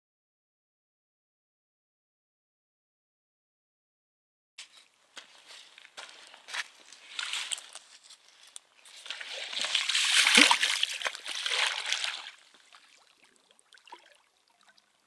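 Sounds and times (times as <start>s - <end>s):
rustle: 4.6s - 11.4s
fish splashing in water: 9.0s - 14.8s.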